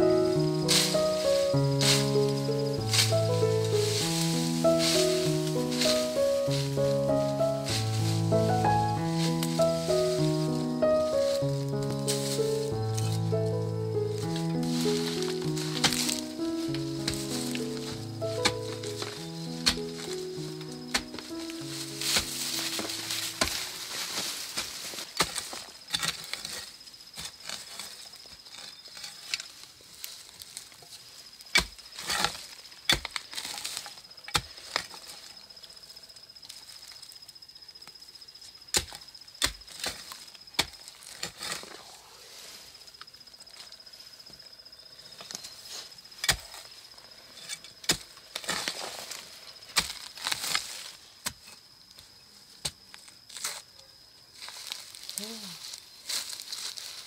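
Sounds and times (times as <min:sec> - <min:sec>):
hoe scraping soil: 0:00.0 - 0:35.3, 0:39.4 - 0:42.9, 0:45.2 - 0:51.6
loose dirt falling: 0:00.0 - 0:35.6, 0:47.4 - 0:53.7
hoe chopping into earth: 0:15.0 - 0:20.1, 0:22.0 - 0:23.7, 0:46.2 - 0:46.6, 0:47.8 - 0:49.1, 0:49.7 - 0:51.5.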